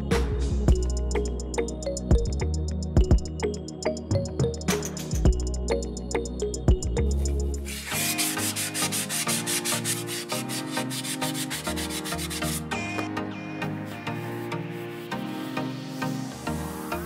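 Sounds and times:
background music: 0:00.0 - 0:17.0
sponge scratching on plaster: 0:07.7 - 0:13.0.

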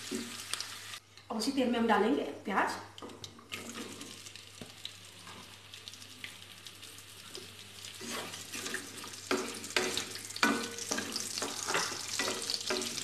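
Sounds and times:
onions sizzling in oil: 0:00.0 - 0:01.0, 0:03.5 - 0:13.0
spatula scraping pan: 0:08.0 - 0:13.0.

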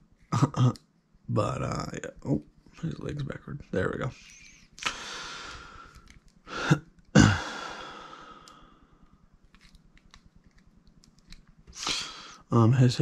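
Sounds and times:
person exhaling sharply: 0:04.8 - 0:05.9, 0:06.5 - 0:08.7, 0:11.7 - 0:12.4.

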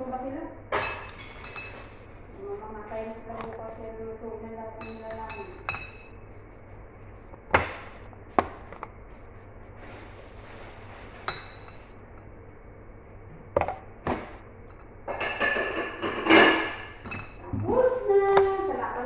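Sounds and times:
metal spoon clinking on glass: 0:00.8 - 0:02.3, 0:04.8 - 0:06.1, 0:14.7 - 0:17.4.

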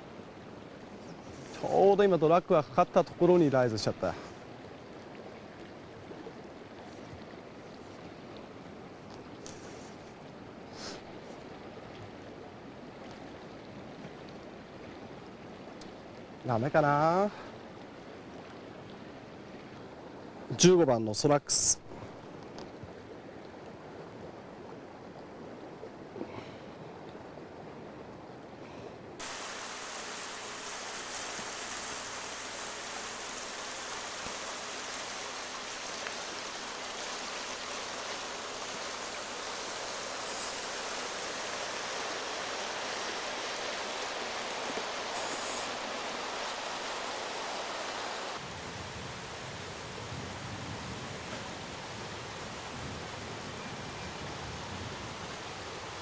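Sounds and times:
river rushing over stones: 0:29.2 - 0:56.0.

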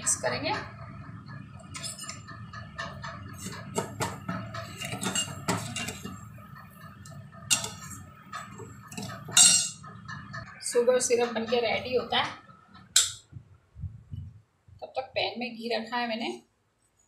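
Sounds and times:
metal spoon clinking in pan: 0:04.7 - 0:06.2, 0:07.5 - 0:09.8, 0:13.0 - 0:13.2.

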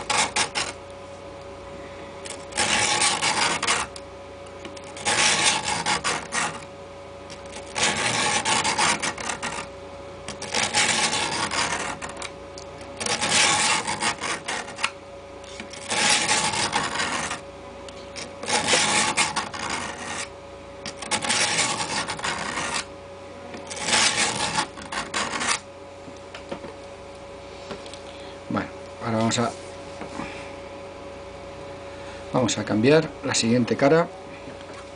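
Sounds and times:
knife grinding on sharpening stone: 0:00.0 - 0:00.8, 0:02.2 - 0:04.0, 0:04.8 - 0:06.7, 0:07.3 - 0:09.7, 0:10.3 - 0:12.3, 0:13.0 - 0:22.9, 0:23.6 - 0:25.6.

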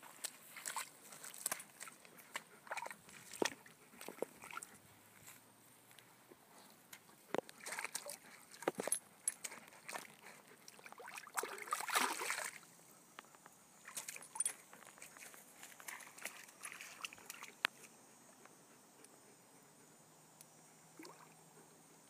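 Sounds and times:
dog splashing in water: 0:00.2 - 0:04.7, 0:07.5 - 0:08.9, 0:10.7 - 0:12.7, 0:13.8 - 0:17.6
water dripping: 0:10.7 - 0:12.6, 0:21.0 - 0:21.4.

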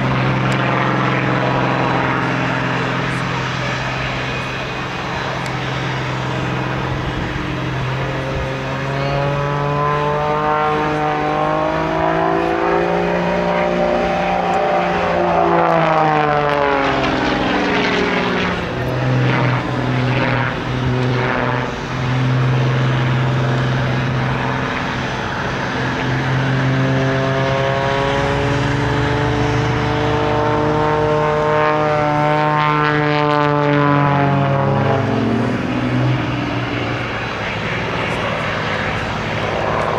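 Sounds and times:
propeller airplane engine droning: 0:00.0 - 0:39.9.

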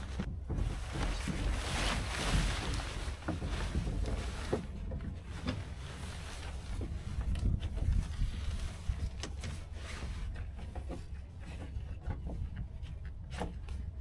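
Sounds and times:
fabric rustling and rubbing: 0:00.0 - 0:11.8
wind rumbling on microphone: 0:00.0 - 0:14.0.

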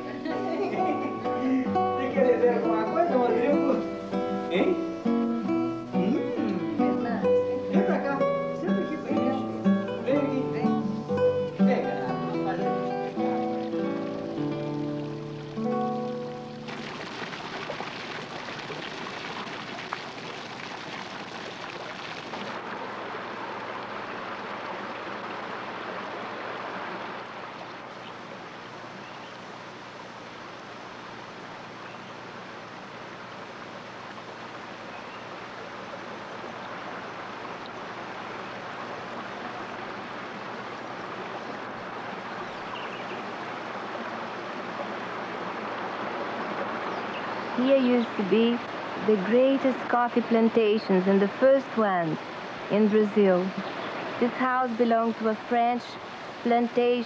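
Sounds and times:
running water rushing: 0:00.0 - 0:57.0.

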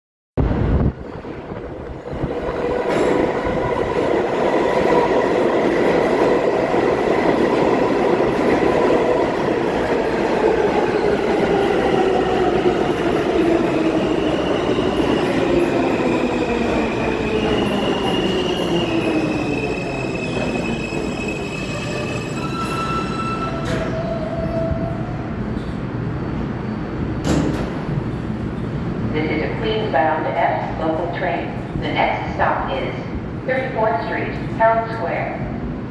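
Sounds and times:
subway train rumble: 0:00.4 - 0:35.9.

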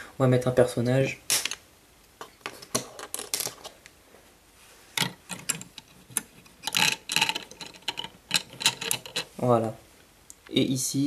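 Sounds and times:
plastic toy bricks clicking: 0:05.0 - 0:09.3.

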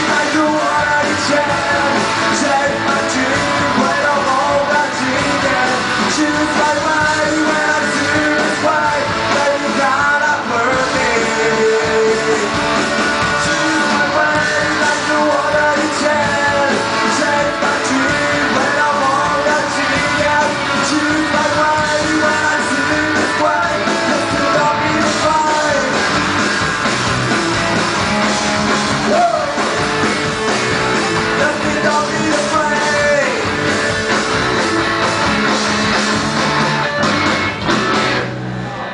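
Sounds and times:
person singing: 0:00.0 - 0:26.1, 0:28.9 - 0:30.0, 0:31.0 - 0:33.6
live rock band playing: 0:00.0 - 0:38.9.

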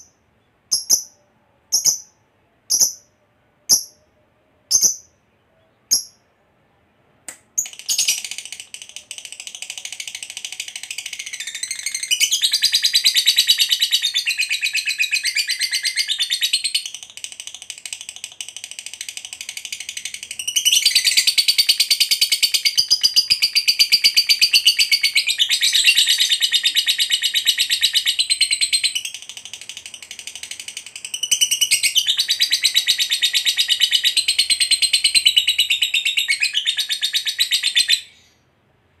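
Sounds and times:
bird chirp: 0:00.0 - 0:38.5
lovebird chattering trills: 0:00.7 - 0:02.1.

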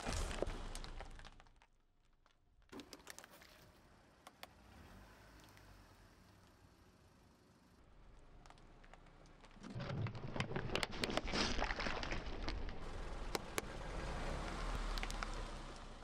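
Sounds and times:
tyre crushing squishy toy: 0:08.4 - 0:12.8.

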